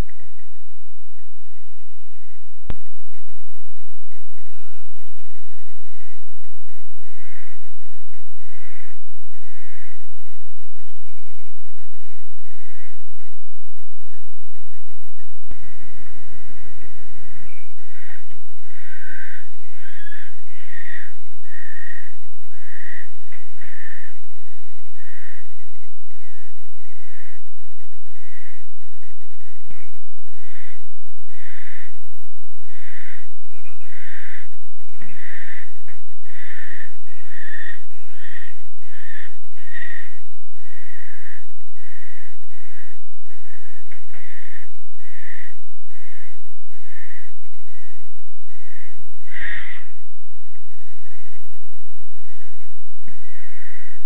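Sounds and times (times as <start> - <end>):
barn owls hissing: 15.6 - 29.2, 29.8 - 32.0, 32.6 - 50.0, 52.2 - 54.0.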